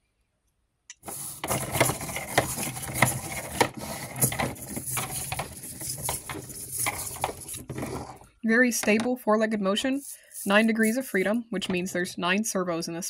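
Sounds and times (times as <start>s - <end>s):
plastic feet tapping on tabletop: 1.0s - 8.2s.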